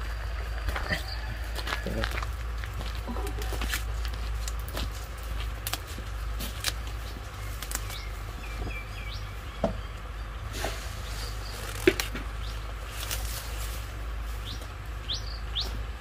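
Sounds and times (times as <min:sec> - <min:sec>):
steady low rumble: 0:00.0 - 0:16.0
sharp clicks and snaps: 0:05.6 - 0:05.9.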